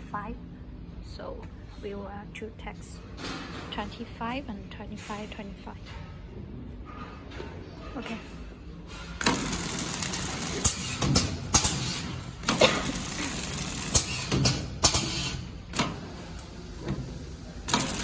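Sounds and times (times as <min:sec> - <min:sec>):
packing machine rattling: 0:09.2 - 0:16.0, 0:17.7 - 0:18.0.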